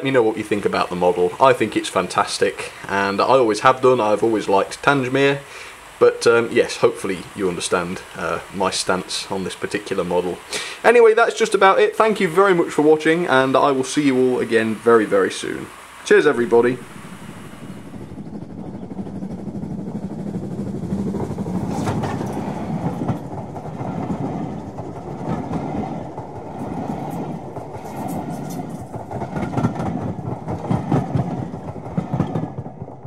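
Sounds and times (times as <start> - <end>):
train rumbling on rails: 0.0 - 33.0
wheels clicking over rail joints: 18.3 - 33.0.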